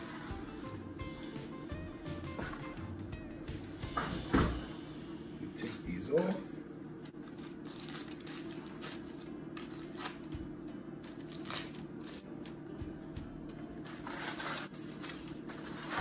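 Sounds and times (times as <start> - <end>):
steady low hum: 0.0 - 16.0
aluminium foil crinkling: 7.0 - 10.4, 11.0 - 12.3, 13.8 - 16.0.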